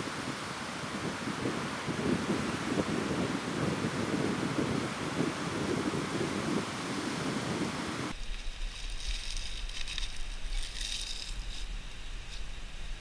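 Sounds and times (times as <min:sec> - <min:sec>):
low wind rumble: 0:00.0 - 0:13.0
wind buffeting microphone: 0:00.0 - 0:13.0
leaves crumpled rustling: 0:08.1 - 0:13.0.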